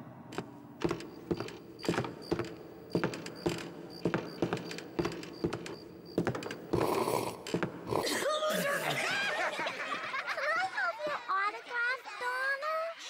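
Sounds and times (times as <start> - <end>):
cartoon footsteps on wooden floor: 0.3 - 8.2.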